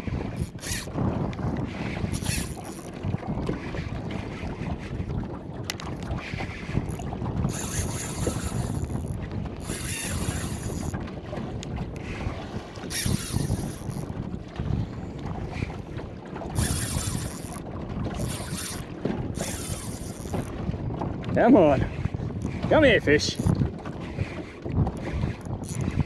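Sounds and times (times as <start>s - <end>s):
wind buffeting microphone: 0.0s - 26.0s
fishing reel drag buzzing: 0.3s - 0.9s, 2.0s - 2.9s, 6.8s - 11.0s, 12.9s - 14.1s, 16.6s - 17.6s, 18.2s - 20.5s, 25.6s - 26.0s.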